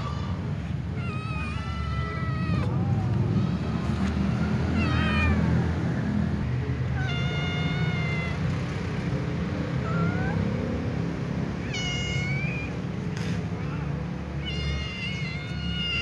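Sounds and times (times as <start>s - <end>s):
cat meowing: 0.9s - 3.8s, 4.4s - 5.6s, 6.9s - 8.6s, 9.7s - 10.6s, 11.6s - 12.8s, 13.5s - 16.0s.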